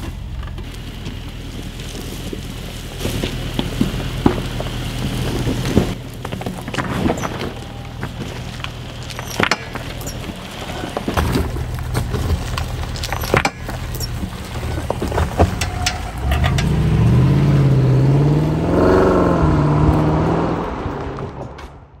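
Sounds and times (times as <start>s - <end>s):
car engine accelerating: 0.0s - 22.0s
tyres crunching stones: 0.0s - 22.0s.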